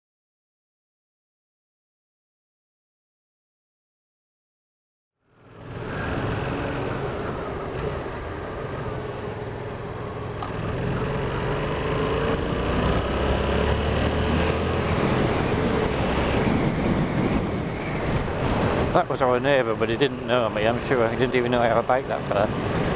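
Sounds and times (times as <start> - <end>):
motorcycle engine cruising: 5.2 - 22.9
wind rushing: 11.7 - 19.1.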